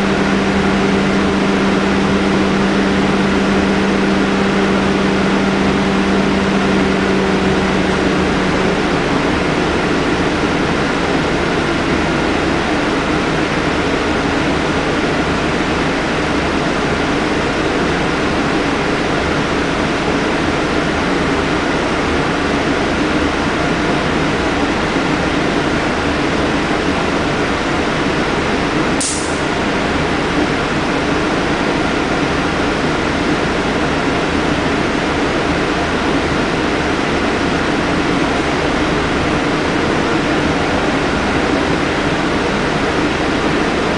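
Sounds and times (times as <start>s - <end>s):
air-conditioning rush: 0.0s - 43.9s
bus engine idling: 0.0s - 43.9s
short sharp hiss: 29.0s - 29.4s.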